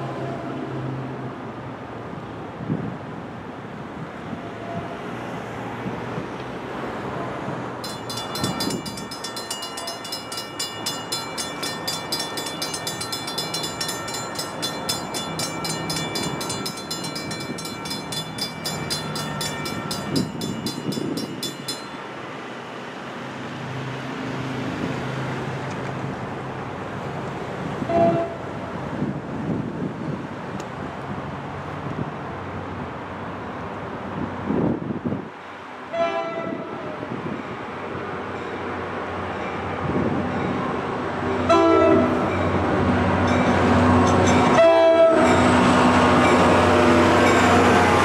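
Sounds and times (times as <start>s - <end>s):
crossing warning bell ringing: 7.8s - 22.9s, 38.3s - 48.0s.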